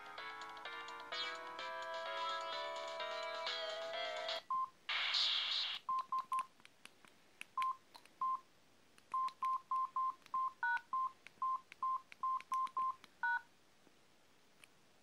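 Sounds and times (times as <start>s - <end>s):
phone keypad beeps: 5.9s - 6.5s, 7.6s - 8.4s, 9.1s - 13.4s.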